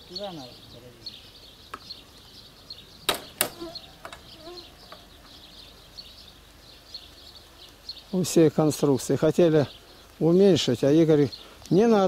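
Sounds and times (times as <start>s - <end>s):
high chirping: 0.0s - 11.8s
hammer striking nail in wood: 3.1s - 3.7s.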